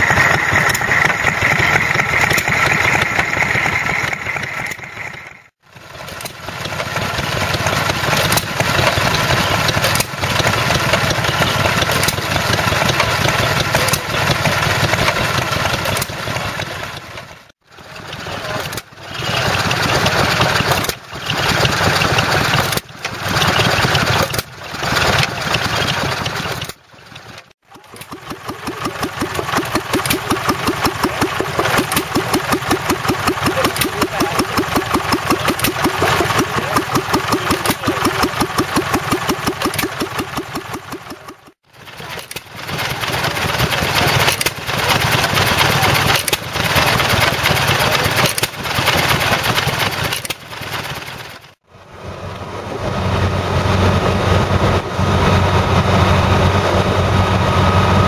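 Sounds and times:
stationary engines running: 0:00.0 - 0:58.0.

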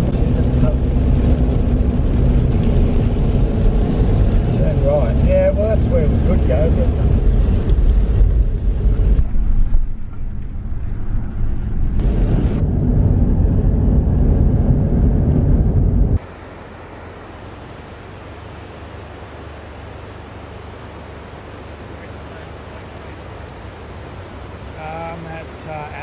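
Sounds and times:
road and tyre noise in car: 0:00.0 - 0:26.0
river rushing over rapids: 0:16.2 - 0:26.0.

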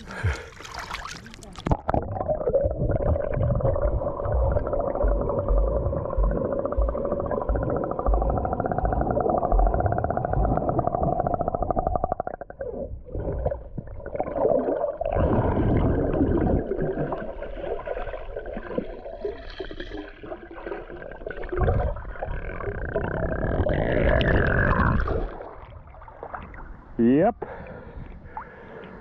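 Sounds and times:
muffled underwater rumbling: 0:01.1 - 0:28.8
buzzing tone: 0:03.8 - 0:12.2.

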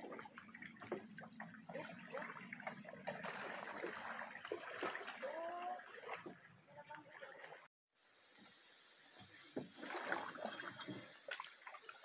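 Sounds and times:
water dripping off paddle: 0:00.0 - 0:06.4, 0:09.6 - 0:12.0
paddle splashing in water: 0:00.0 - 0:07.7, 0:09.5 - 0:12.0.

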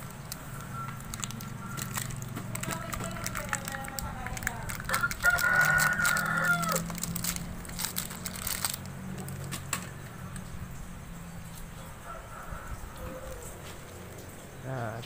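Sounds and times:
rooster crowing: 0:04.8 - 0:07.2, 0:11.7 - 0:13.9.

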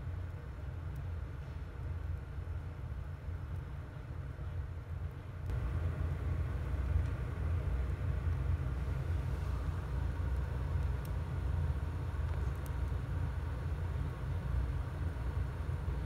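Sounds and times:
burner rumbling with fan blowing: 0:00.0 - 0:16.0.

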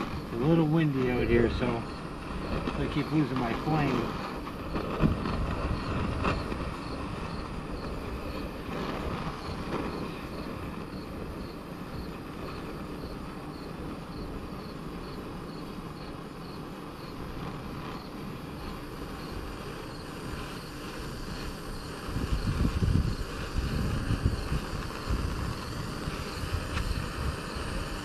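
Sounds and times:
propane torch burning: 0:00.0 - 0:28.0
wind buffeting microphone: 0:00.0 - 0:28.0.

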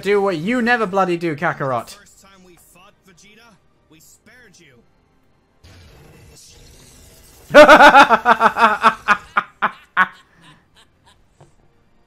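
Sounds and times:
man laughing heartily: 0:07.5 - 0:11.4.

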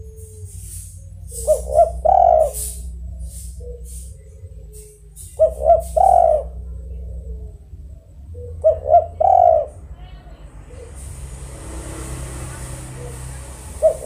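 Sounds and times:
dove cooing: 0:00.0 - 0:09.9, 0:12.9 - 0:14.0.

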